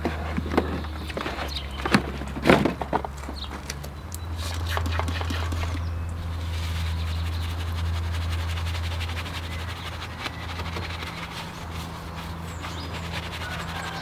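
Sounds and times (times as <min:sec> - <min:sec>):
steady low hum: 0:00.0 - 0:14.0
brush scrubbing: 0:04.4 - 0:14.0.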